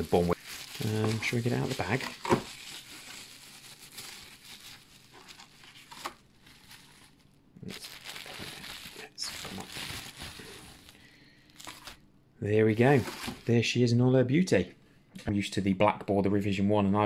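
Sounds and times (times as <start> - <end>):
bubble wrap crinkling: 0.0 - 12.0, 12.6 - 13.5.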